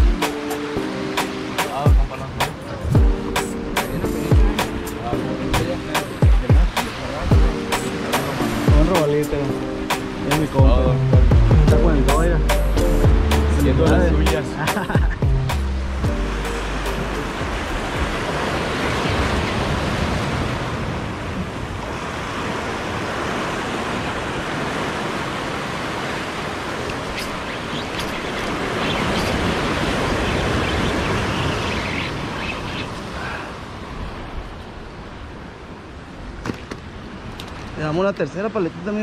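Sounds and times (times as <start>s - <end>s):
waves washing over rocks: 0.0s - 11.3s, 15.8s - 39.0s
wind on microphone: 16.8s - 37.8s.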